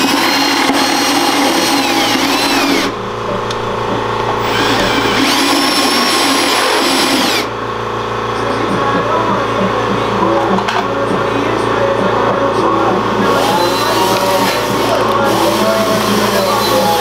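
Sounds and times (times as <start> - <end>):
electric drill whining: 0.0 - 7.5, 13.2 - 17.0.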